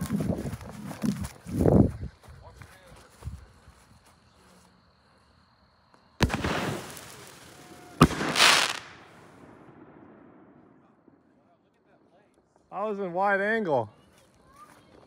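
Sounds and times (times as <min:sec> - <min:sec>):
firework hissing: 0:06.2 - 0:09.3
firework crackling: 0:06.2 - 0:09.5
firework launch bang: 0:06.2 - 0:10.6
firework shell burst: 0:08.0 - 0:09.1.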